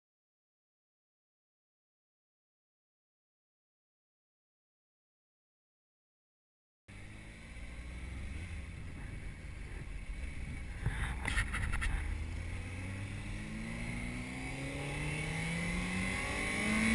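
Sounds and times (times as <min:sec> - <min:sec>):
motorcycle engine revving: 0:06.9 - 0:16.9.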